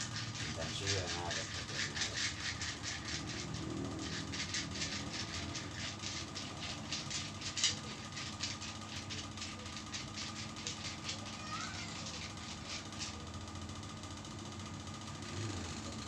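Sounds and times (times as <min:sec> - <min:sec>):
hands rubbing skin: 0:00.0 - 0:11.3, 0:11.9 - 0:13.2.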